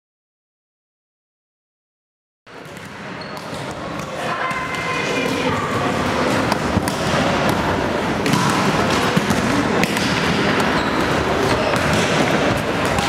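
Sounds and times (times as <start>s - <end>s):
background hubbub: 2.5s - 13.0s
volleyballs thumping on wooden floor: 6.3s - 13.0s.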